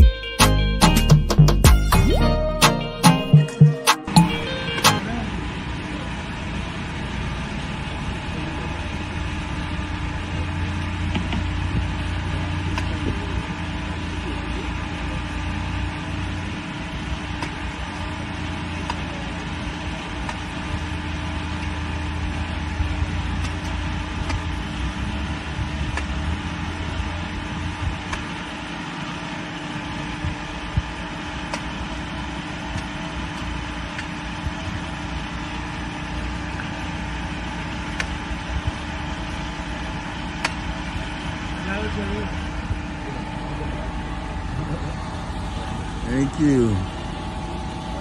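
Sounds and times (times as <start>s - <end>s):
engine hum: 0.0s - 48.0s
machete striking coconut: 31.5s - 31.8s, 40.4s - 40.6s.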